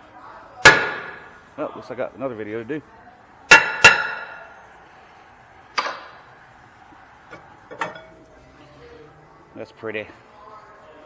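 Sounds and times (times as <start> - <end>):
metal tools knocking and clinking: 7.3 - 8.2.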